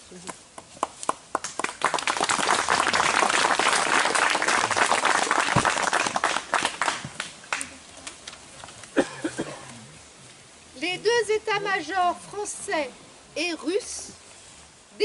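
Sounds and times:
audience applauding: 0:01.0 - 0:07.8.

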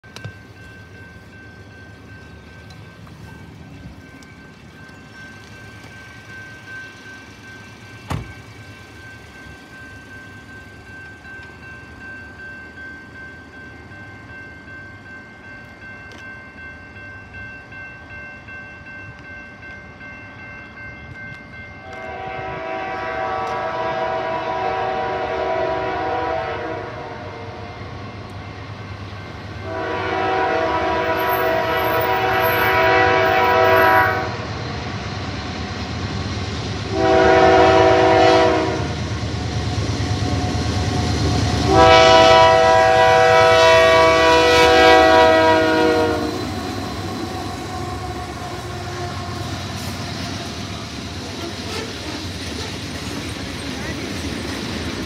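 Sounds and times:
crossing bell ringing: 0:00.0 - 0:36.2, 0:36.8 - 0:55.0
locomotive air horn blasts: 0:21.8 - 0:27.8, 0:29.6 - 0:34.5, 0:36.9 - 0:39.0, 0:41.6 - 0:50.2.

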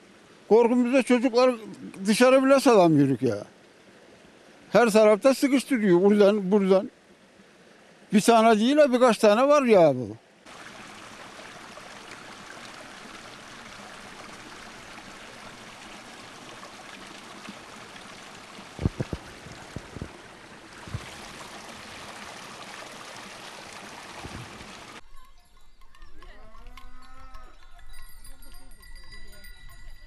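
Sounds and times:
stream rushing: 0:00.0 - 0:25.0
soft low thumps: 0:18.8 - 0:20.2, 0:20.8 - 0:21.2.

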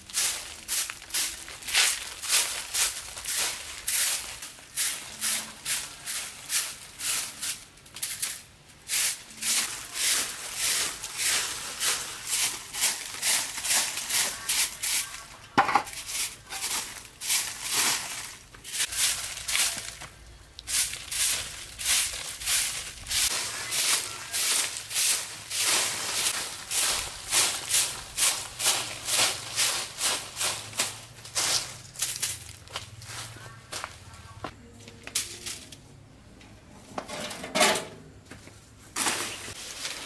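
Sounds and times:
broom sweeping leaves on dirt: 0:00.0 - 0:34.0, 0:38.8 - 0:40.0.

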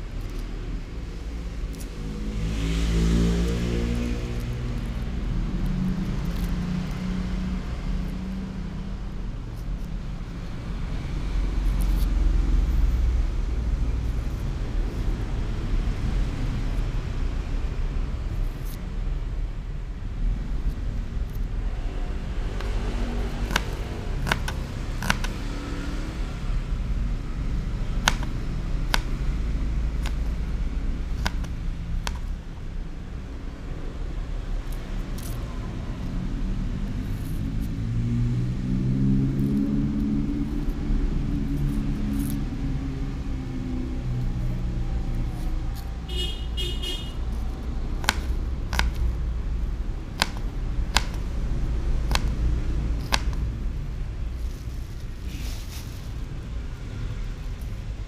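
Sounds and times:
traffic rumble: 0:00.0 - 0:58.0
vehicle passing hum: 0:00.0 - 0:58.0
knife clicking on cutting board: 0:50.2 - 0:51.2, 0:53.0 - 0:53.4.

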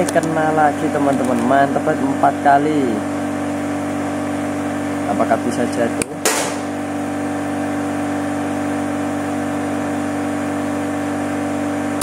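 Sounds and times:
steady mechanical hum: 0:00.0 - 0:12.0
air rifle shot: 0:06.2 - 0:06.7.

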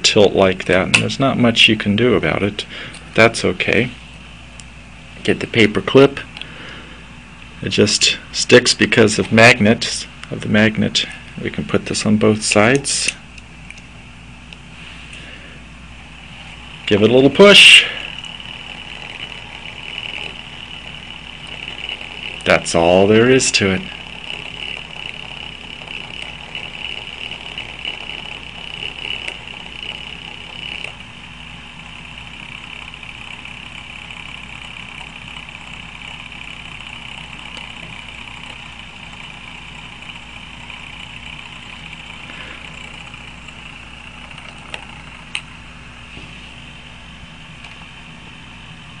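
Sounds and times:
small motor whirring buzz: 0:14.7 - 0:48.1.

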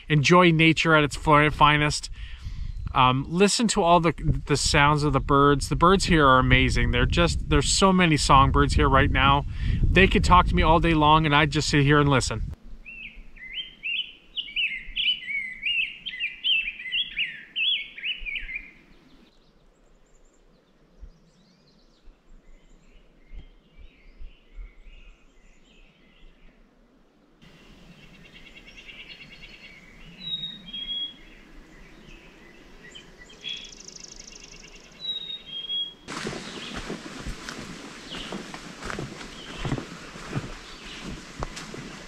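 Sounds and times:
bird calls: 0:12.8 - 0:26.6, 0:27.4 - 0:42.0
songbirds warbling: 0:12.8 - 0:42.0.

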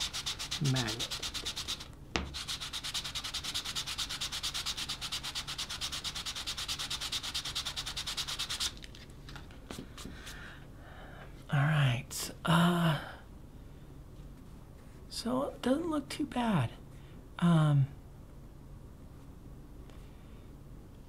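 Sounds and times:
sandpaper rubbing on leather: 0:00.0 - 0:08.8.

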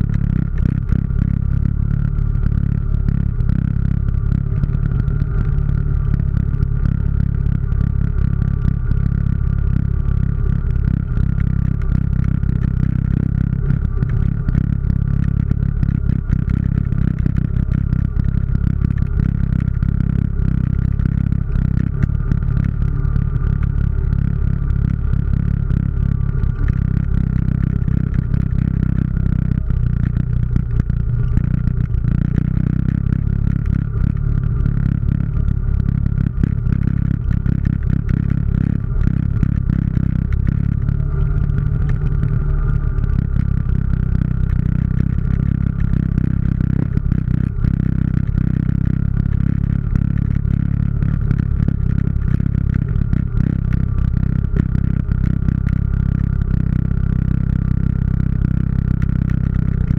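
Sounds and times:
high whine: 0:00.0 - 0:56.4
atv engine drone: 0:00.0 - 0:59.9.

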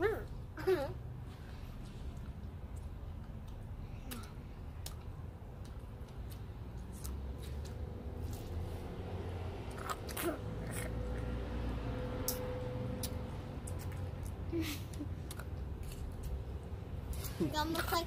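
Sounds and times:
gum chewing: 0:09.7 - 0:11.3, 0:12.2 - 0:14.5, 0:15.2 - 0:16.4.

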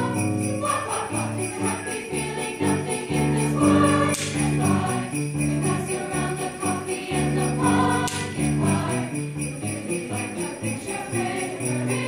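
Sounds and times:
mixed choir singing: 0:00.0 - 0:12.0
sleigh bells jingling: 0:00.0 - 0:12.0.

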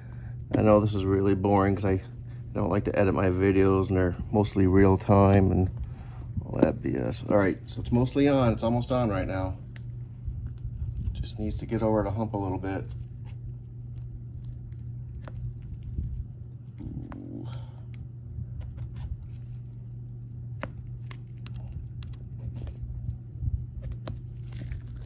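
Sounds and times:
steady low hum: 0:00.0 - 0:25.0
small clicks and scrapes on rubber: 0:18.5 - 0:25.0.

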